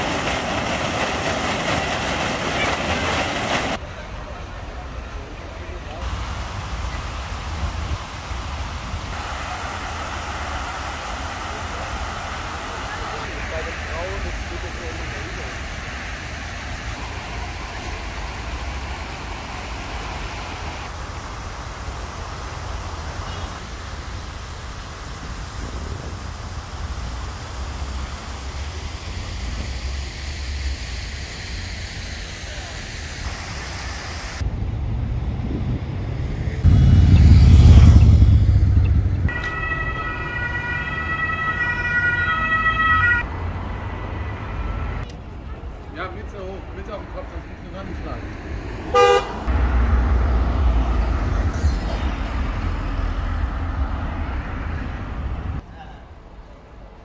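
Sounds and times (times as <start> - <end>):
even hiss: 5.9 - 34.4
low fluttering rumble: 34.4 - 39.3
heavy vehicle rumbling past: 34.4 - 41.4, 47.2 - 55.6.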